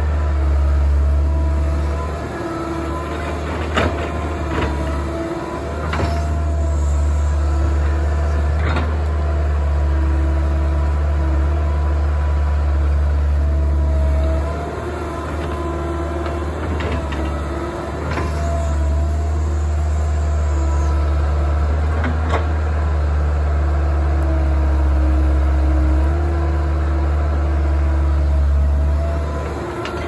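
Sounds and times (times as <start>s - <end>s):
hydraulic whine: 0.0s - 12.0s
excavator diesel engine: 0.0s - 30.0s.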